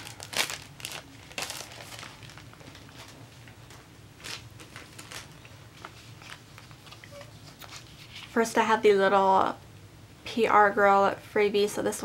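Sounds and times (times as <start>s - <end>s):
plastic crinkles: 0.0s - 8.4s
plastic sleeve rustling: 0.0s - 8.4s.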